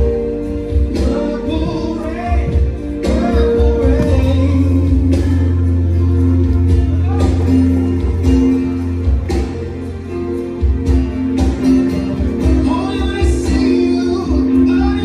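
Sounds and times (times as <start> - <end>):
person singing: 0.0 - 8.5, 12.4 - 15.0
song with strong bass: 0.0 - 15.0.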